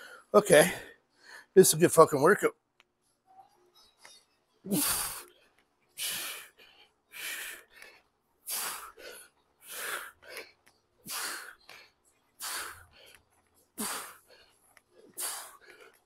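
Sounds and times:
man breathing hard in puffs: 0:06.0 - 0:16.0.

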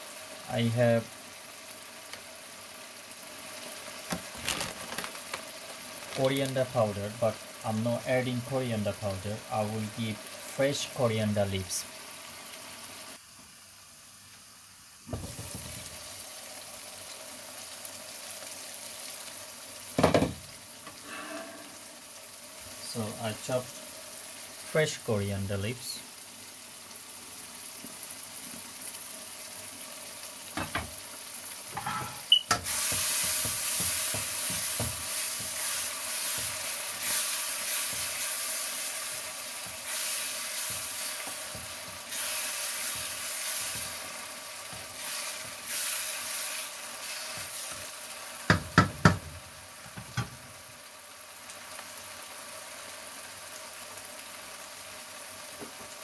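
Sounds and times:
curry sizzling in a wok: 0:00.0 - 0:56.0
spoon knocking against pan: 0:48.5 - 0:49.3.

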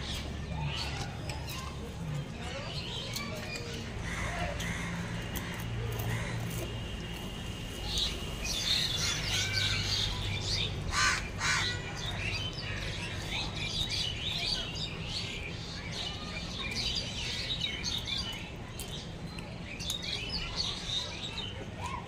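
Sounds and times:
small birds chirping: 0:00.0 - 0:22.0
harsh bird calls: 0:07.8 - 0:18.4.

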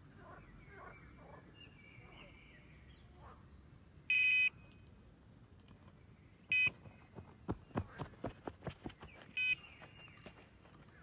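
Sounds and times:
electronic bite alarm beeps: 0:04.1 - 0:04.6, 0:06.5 - 0:06.7, 0:09.4 - 0:09.6.

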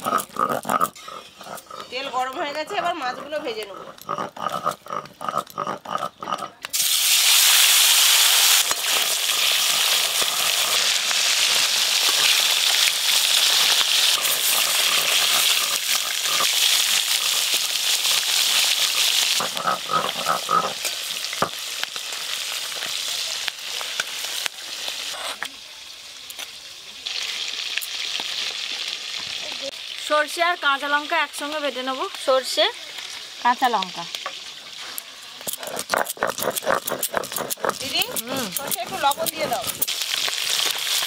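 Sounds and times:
fish sizzling in hot oil: 0:06.7 - 0:36.2, 0:37.8 - 0:41.0.

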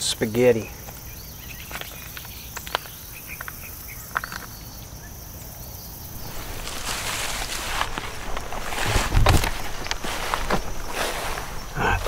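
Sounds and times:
insect chirps: 0:00.0 - 0:12.0
high insect buzz: 0:00.2 - 0:12.0
footsteps rustling through grass: 0:06.1 - 0:12.0.

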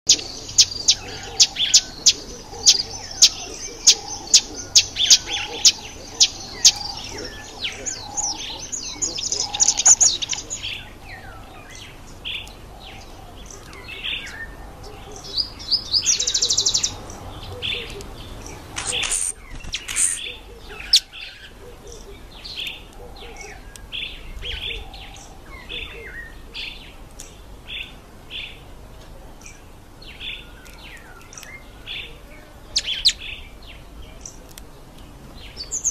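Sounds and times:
birds chirping and twittering: 0:00.0 - 0:35.9
buzzy bird trill: 0:00.1 - 0:11.6, 0:18.5 - 0:21.1.

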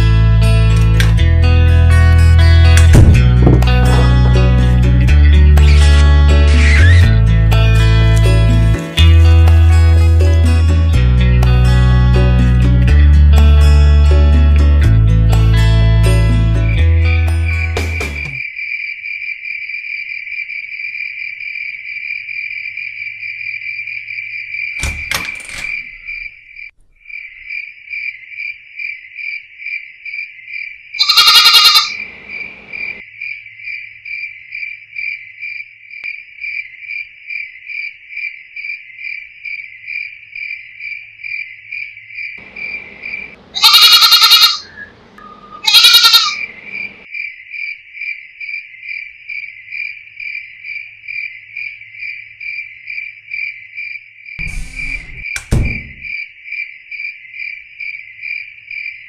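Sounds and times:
sharp knock: 0:02.9 - 0:03.7, 0:54.4 - 0:56.2
crickets chirping: 0:17.4 - 0:59.0
goat bleating: 0:31.0 - 0:32.0, 0:43.6 - 0:44.7, 0:45.6 - 0:46.5.

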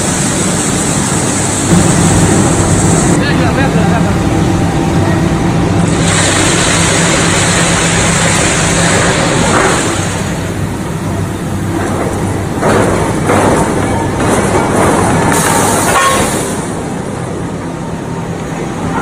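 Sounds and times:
loud rushing hiss: 0:00.0 - 0:11.6
low machine hum: 0:00.0 - 0:19.0
noisy mill din: 0:00.0 - 0:19.0.

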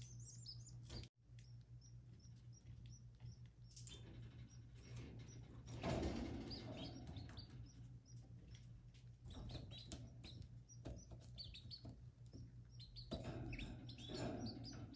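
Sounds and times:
nestlings cheeping: 0:00.0 - 0:05.9.

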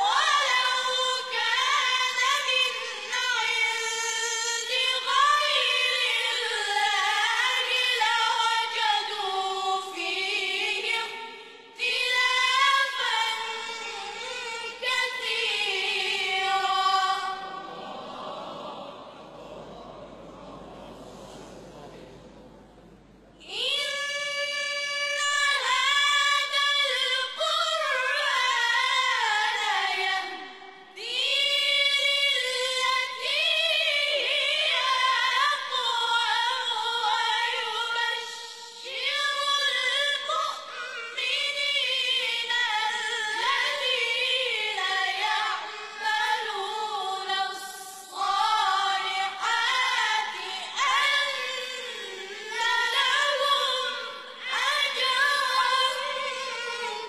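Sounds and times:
boys choir chanting in unison: 0:17.4 - 0:22.0.

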